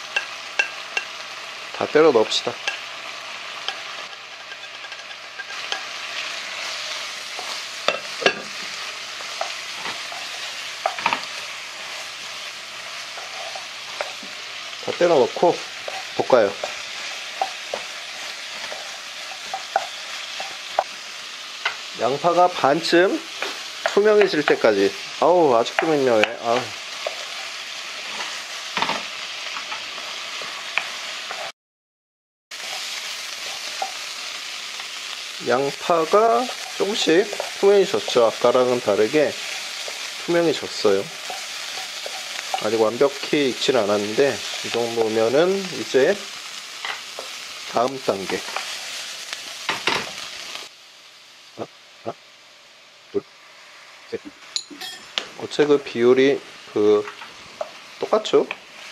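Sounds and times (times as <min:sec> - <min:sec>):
vegetables sizzling in a pan: 0:00.0 - 0:31.5, 0:32.5 - 0:58.9
spoon clacking against pan: 0:00.1 - 0:01.2, 0:02.6 - 0:02.9, 0:03.6 - 0:06.7, 0:07.3 - 0:11.3, 0:15.8 - 0:21.0, 0:36.4 - 0:38.4, 0:41.1 - 0:42.7
wooden spatula scraping a pan: 0:13.0 - 0:15.0, 0:36.1 - 0:44.8.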